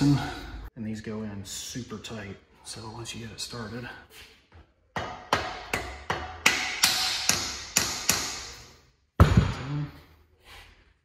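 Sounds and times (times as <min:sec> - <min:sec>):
rubber mallet striking metal: 0:04.9 - 0:09.7.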